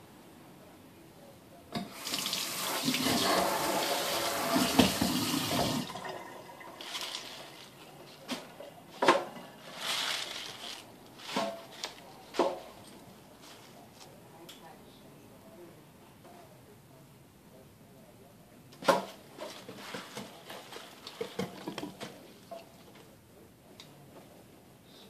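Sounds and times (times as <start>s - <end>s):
kitchen tap running: 1.8s - 7.8s.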